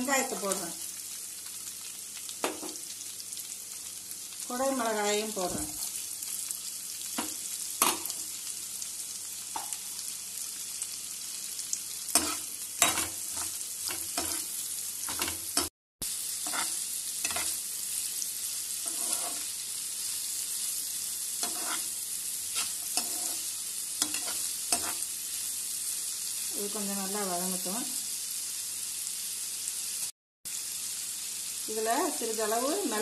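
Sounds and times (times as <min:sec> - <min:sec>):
vegetables sizzling in oil: 0:00.0 - 0:33.0
ladle knocking and scraping a pan: 0:18.9 - 0:19.4.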